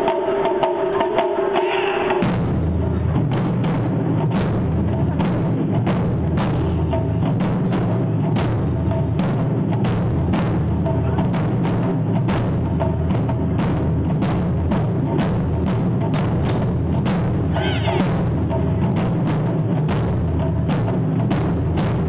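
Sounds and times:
drum ensemble drumming: 0:00.0 - 0:22.0.

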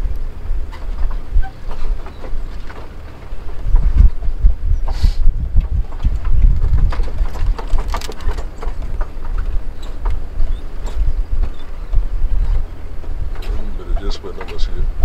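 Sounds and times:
vehicle rumbling on rough road: 0:00.0 - 0:15.0
knocks and rattles: 0:00.6 - 0:04.4, 0:05.5 - 0:11.7.

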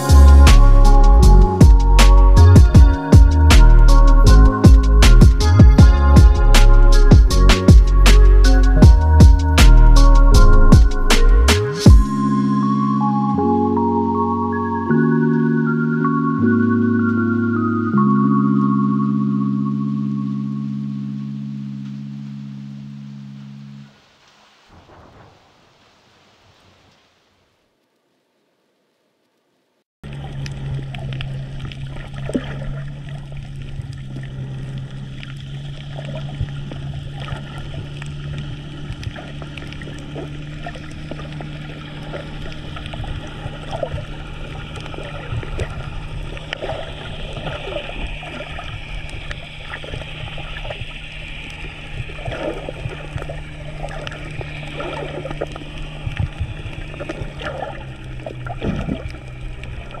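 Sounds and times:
low hum: 0:00.0 - 0:26.0, 0:30.0 - 1:00.0
underwater water noise: 0:00.0 - 0:28.9, 0:30.0 - 1:00.0
sharp underwater clicks and crackles: 0:30.0 - 1:00.0.

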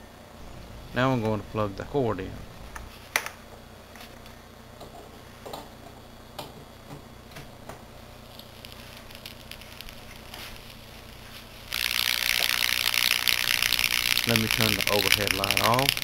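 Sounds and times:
hot dog crackling and sizzling: 0:07.9 - 0:16.0.

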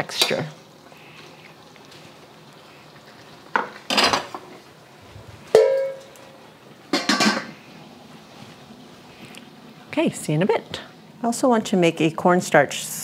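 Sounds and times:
metal cookware clattering: 0:03.6 - 0:04.5, 0:05.5 - 0:06.2, 0:06.9 - 0:07.6
ringing metal clang: 0:05.6 - 0:06.1.

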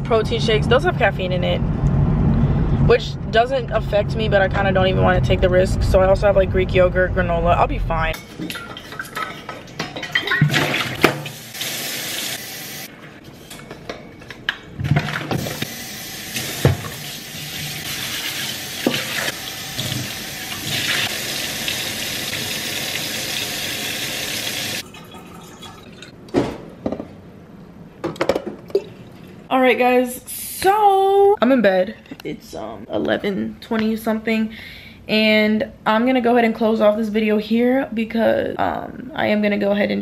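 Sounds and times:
water running: 0:08.4 - 0:12.9, 0:15.4 - 0:26.1.

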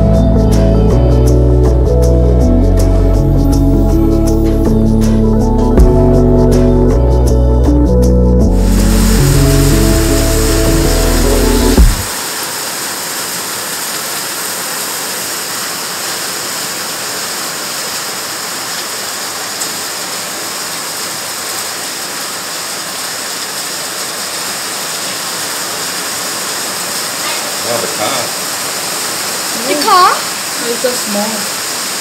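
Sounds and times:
background music: 0:00.0 - 0:12.1
heavy rain and hail pouring: 0:08.6 - 0:32.0.

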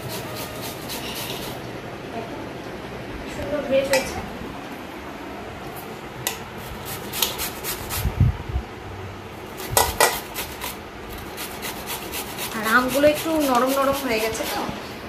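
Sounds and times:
mango grating scrapes: 0:00.0 - 0:01.6, 0:06.6 - 0:08.1, 0:09.5 - 0:14.8.

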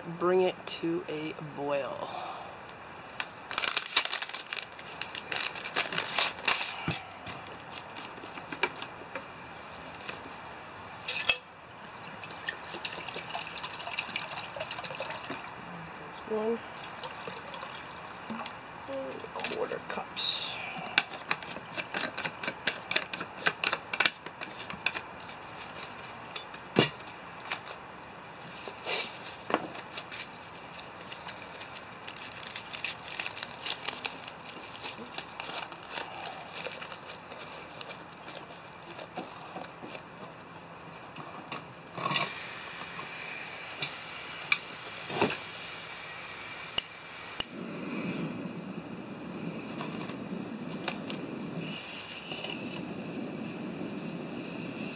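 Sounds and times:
scraping rustle: 0:03.1 - 0:10.4, 0:21.1 - 0:26.6, 0:27.4 - 0:40.4
gas hissing: 0:06.3 - 0:09.6, 0:17.4 - 0:22.7, 0:28.7 - 0:29.2, 0:42.0 - 0:54.9
burner burning with rushing sound: 0:42.2 - 0:54.9.

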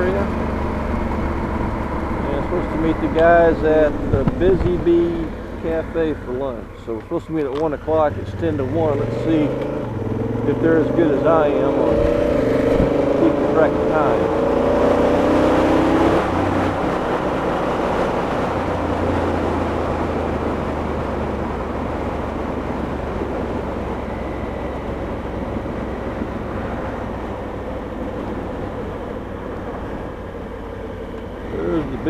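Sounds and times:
motorcycle engine running: 0:00.0 - 0:32.0
wind noise on microphone: 0:00.6 - 0:05.7, 0:11.9 - 0:13.2.

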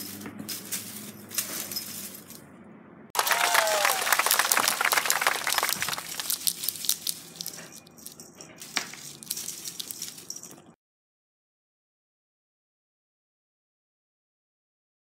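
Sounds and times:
crinkly toy rustling: 0:00.0 - 0:02.4, 0:03.8 - 0:10.8.

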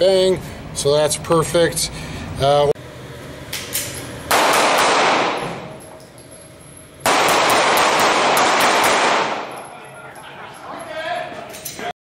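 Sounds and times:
rapid pistol fire: 0:04.3 - 0:05.7, 0:07.0 - 0:09.6.

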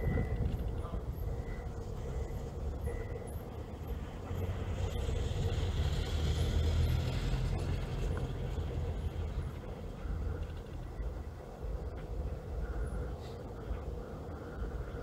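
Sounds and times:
car engine rumble: 0:00.0 - 0:15.0
tyres on cobblestones: 0:00.0 - 0:15.0.

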